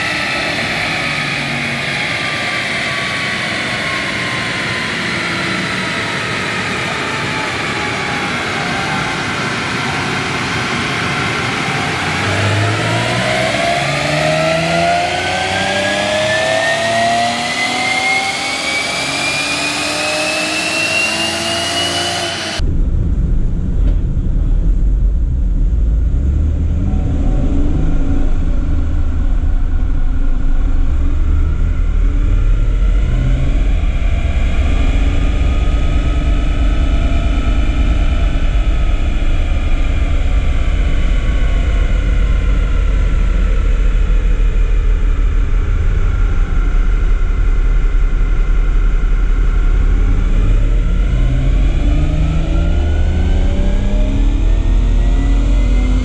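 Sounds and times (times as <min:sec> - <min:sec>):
engine drone inside car cabin: 0:00.0 - 0:56.0
car engine revving under load: 0:10.1 - 0:22.6.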